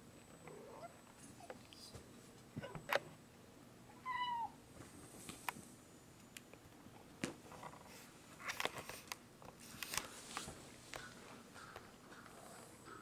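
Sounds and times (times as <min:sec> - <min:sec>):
cat meowing: 0:04.0 - 0:04.6.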